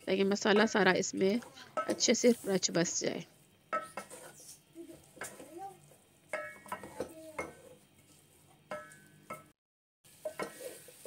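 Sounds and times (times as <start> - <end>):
spoon scraping steel pot: 3.8 - 5.5, 10.2 - 11.0
spoon knocking on pot: 6.3 - 7.6.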